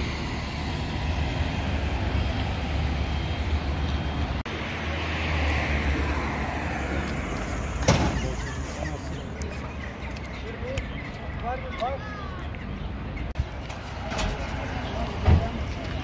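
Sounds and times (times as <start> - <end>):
vehicle engine humming: 0.0 - 11.6
street traffic: 0.0 - 16.0.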